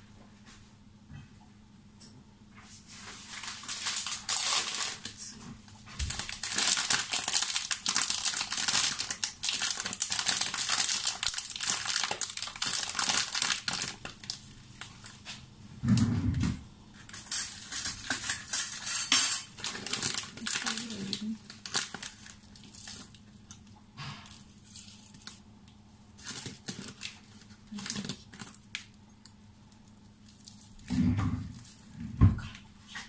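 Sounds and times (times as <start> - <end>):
plastic bag crinkling: 3.1 - 15.4, 17.1 - 23.7, 24.3 - 25.4, 26.1 - 29.0, 29.7 - 32.0.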